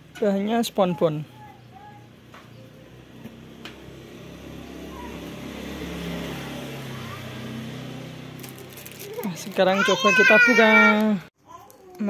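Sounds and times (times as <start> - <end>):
vehicle engine passing by: 2.6 - 9.3.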